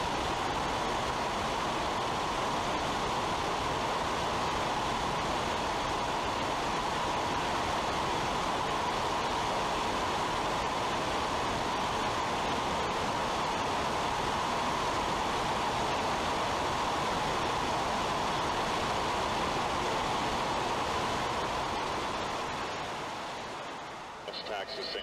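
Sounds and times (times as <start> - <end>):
aircraft engine drone: 24.1 - 25.0.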